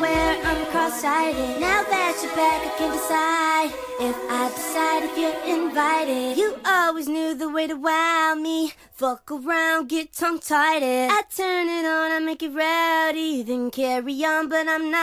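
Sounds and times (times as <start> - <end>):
high pitched sped-up singing: 0.0 - 7.0.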